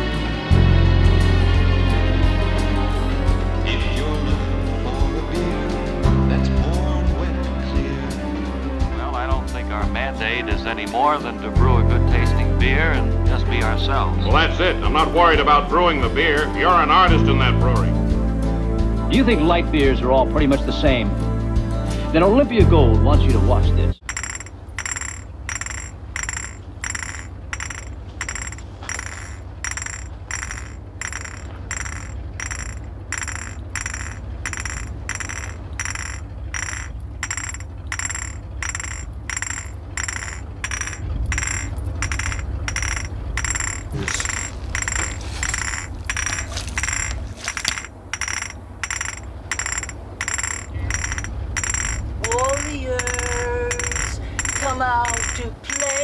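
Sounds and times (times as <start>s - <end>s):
glass bottles clinking: 24.1s - 56.0s.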